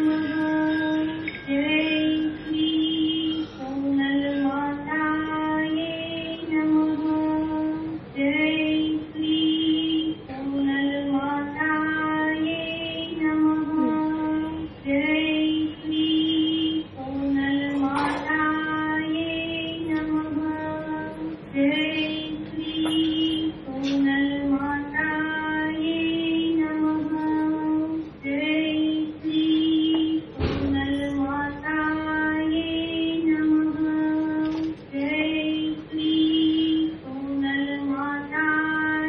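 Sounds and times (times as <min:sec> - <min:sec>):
woman singing a hymn: 0:00.0 - 0:39.0.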